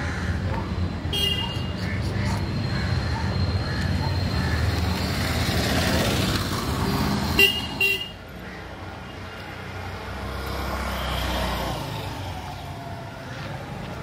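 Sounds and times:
street traffic engine hum: 0:00.0 - 0:14.0
vehicle horn toots: 0:07.4 - 0:08.2.

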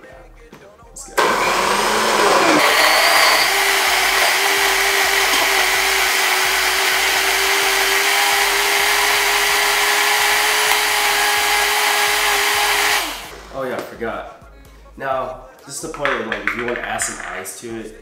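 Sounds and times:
blender motor running: 0:01.2 - 0:13.4.

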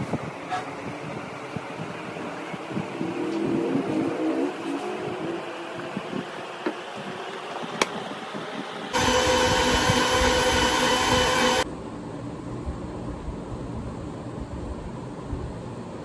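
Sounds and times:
mixer grinder whining: 0:08.9 - 0:11.7.

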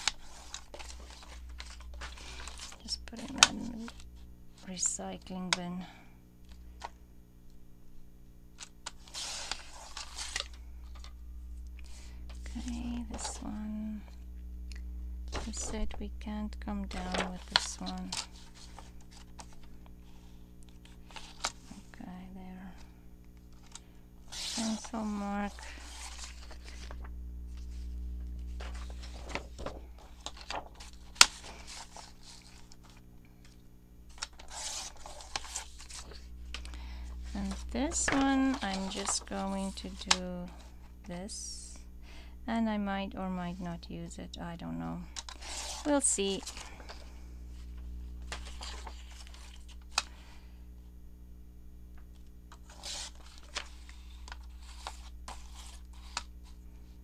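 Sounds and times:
paper rustling: 0:00.0 - 0:04.7, 0:08.6 - 0:11.1, 0:11.8 - 0:13.5, 0:15.3 - 0:16.0, 0:16.8 - 0:21.9, 0:23.4 - 0:33.0, 0:34.1 - 0:40.8, 0:45.2 - 0:50.2, 0:52.5 - 0:56.6
steady low hum: 0:00.0 - 0:57.0.

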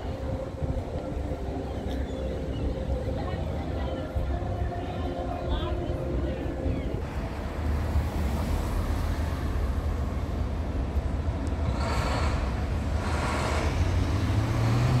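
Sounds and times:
low traffic rumble: 0:00.0 - 0:15.0
vehicle passing: 0:07.2 - 0:15.0
vehicle engine accelerating: 0:11.5 - 0:15.0.

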